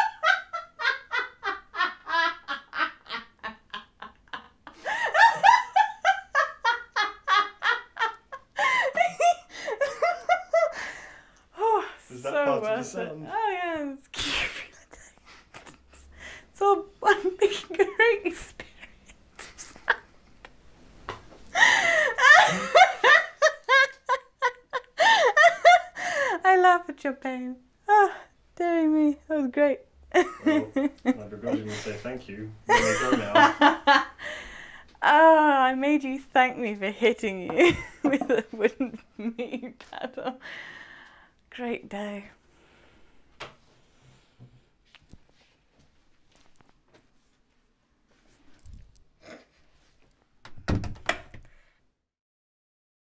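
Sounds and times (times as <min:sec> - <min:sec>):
people laughing hard: 0:00.0 - 0:10.9, 0:21.6 - 0:25.9, 0:32.7 - 0:34.4
breathy gasps: 0:34.2 - 0:34.9, 0:40.4 - 0:41.4.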